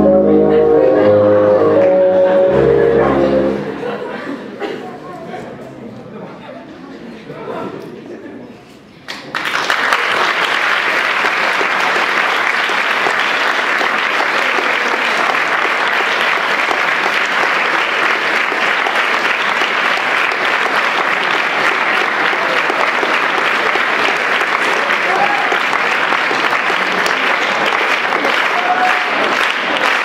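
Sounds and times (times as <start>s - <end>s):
audience applauding: 9.1s - 30.0s.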